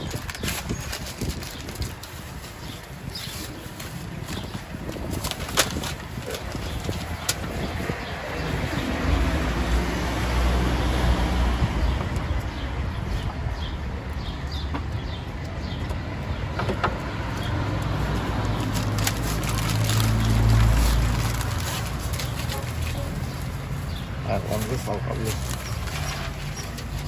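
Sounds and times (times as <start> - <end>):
wrapping paper rustling: 0.0 - 7.6, 18.5 - 27.0
vehicle engine rumbling: 0.0 - 27.0.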